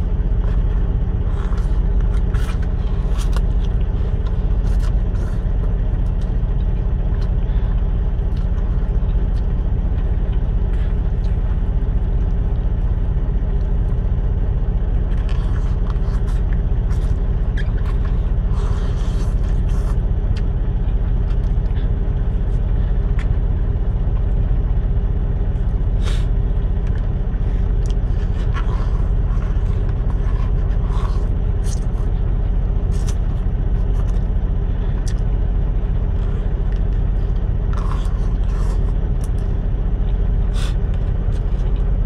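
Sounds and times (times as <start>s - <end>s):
diesel engine idling: 0.0s - 42.0s
even hum: 0.0s - 42.0s
slurping noodles: 0.4s - 6.2s, 15.1s - 20.0s, 25.6s - 26.4s, 27.4s - 32.2s, 36.2s - 39.5s, 40.4s - 41.8s.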